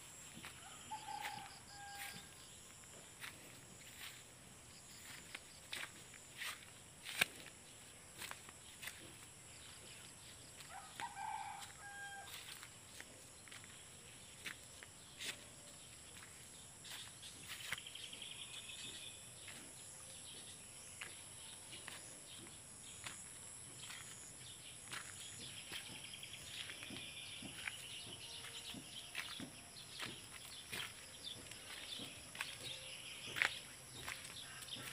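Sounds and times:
footsteps on dirt: 0.0s - 34.9s
insects droning: 0.0s - 34.9s
birds chirping: 12.9s - 34.9s.

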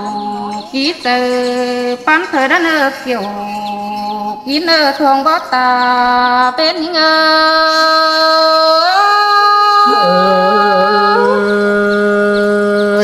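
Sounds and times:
person singing long held note: 9.0s - 13.0s.

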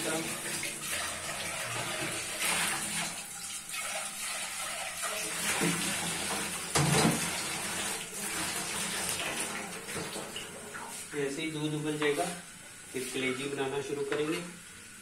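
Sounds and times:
tap water splashing in sink: 0.0s - 11.0s.

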